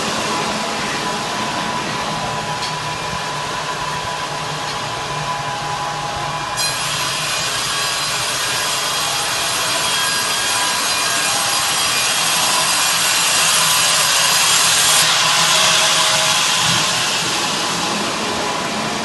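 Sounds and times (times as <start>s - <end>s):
high ringing whine: 0.0s - 19.0s
band saw cutting a log: 6.6s - 18.2s.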